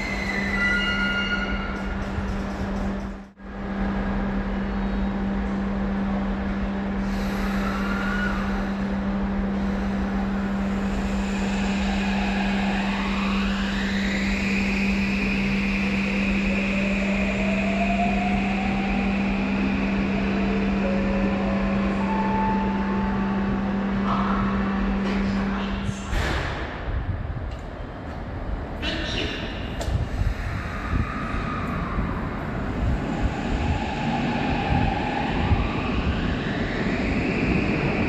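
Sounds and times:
rumble of train cars: 0.0s - 38.0s
steady low hum: 1.5s - 38.0s.

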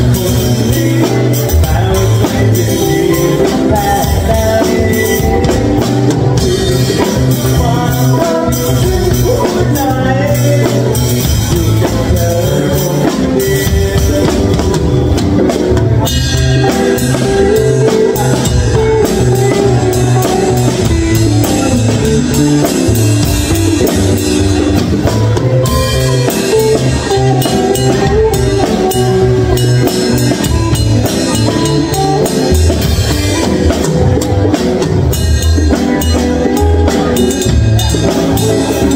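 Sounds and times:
drum kit playing: 0.0s - 38.9s
guitar: 0.0s - 38.9s.

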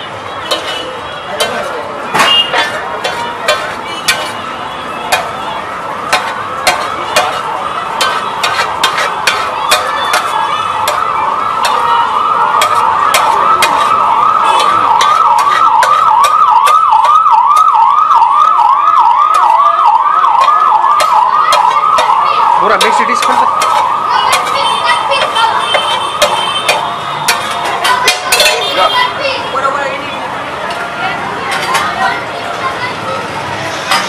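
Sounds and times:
metal spatula tapping on griddle: 0.5s - 0.8s, 1.4s - 4.4s, 5.1s - 5.4s, 6.1s - 11.9s, 12.6s - 13.9s, 14.6s - 17.7s, 20.4s - 22.2s, 22.8s - 28.7s
siren yelping: 4.5s - 29.2s.

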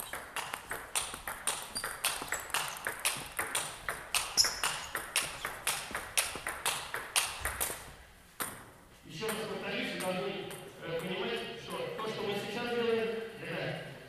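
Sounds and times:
table tennis ball clicking: 0.0s - 7.8s.

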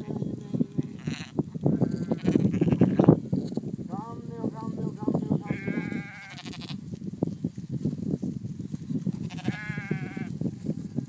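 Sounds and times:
sheep bleating: 0.7s - 3.2s, 5.1s - 6.8s, 9.2s - 10.3s.

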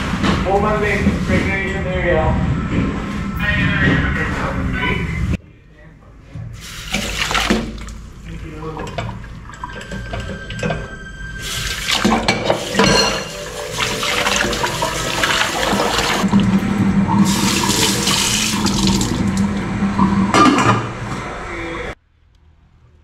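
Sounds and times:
tap water splashing into sink: 6.9s - 8.0s
dishes knocking: 11.9s - 16.6s.

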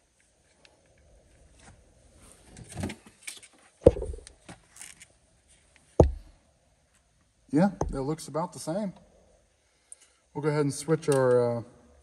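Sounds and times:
sharp knocks: 3.9s - 4.3s, 6.0s - 6.3s, 7.8s - 8.1s.

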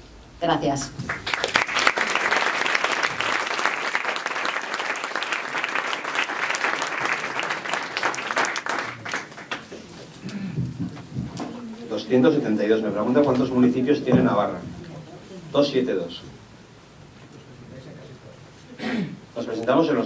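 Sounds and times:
audience applauding: 1.0s - 11.1s.

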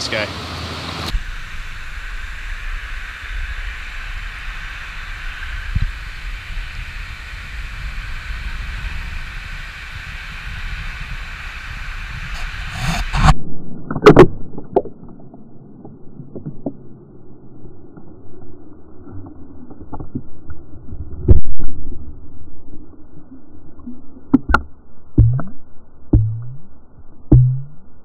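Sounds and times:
muffled underwater current rush: 1.1s - 17.0s.

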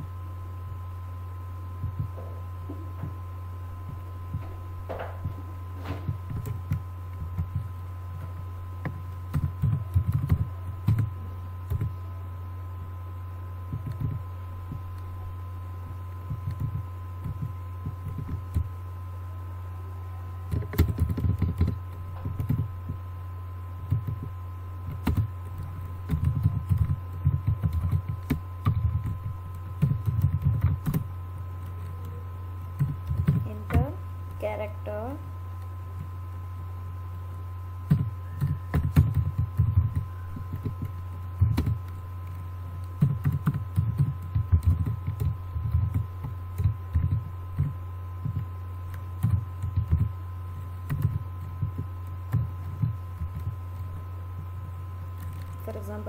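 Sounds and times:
low electrical hum: 0.0s - 56.0s
keyboard typing clicks: 8.8s - 11.9s, 13.7s - 15.1s, 16.3s - 18.7s, 20.5s - 22.7s, 23.8s - 24.3s, 24.9s - 34.4s, 37.9s - 50.1s, 50.8s - 53.9s.

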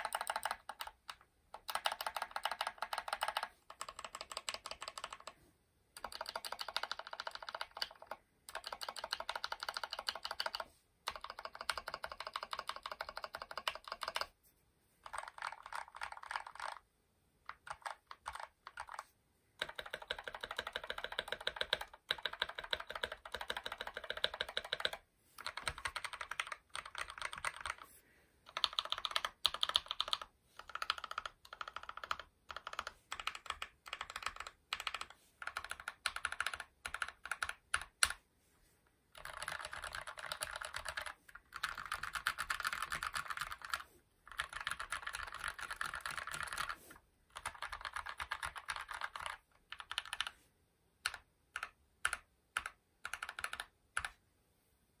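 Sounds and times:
mechanical keyboard typing: 0.0s - 5.4s, 6.0s - 14.4s, 15.0s - 27.9s, 28.5s - 38.2s, 39.1s - 50.4s, 51.0s - 54.2s.

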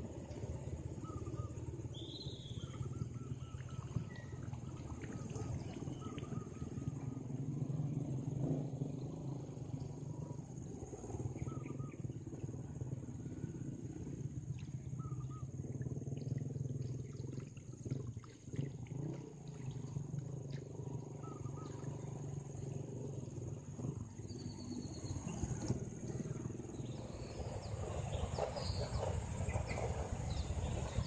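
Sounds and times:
water splashing from net: 15.9s - 20.7s.

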